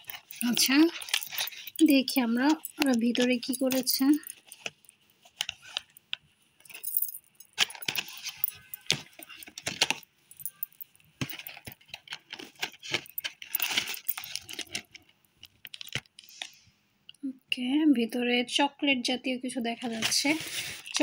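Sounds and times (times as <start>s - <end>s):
metal bracelets jingling: 0.0s - 4.9s, 6.6s - 15.0s.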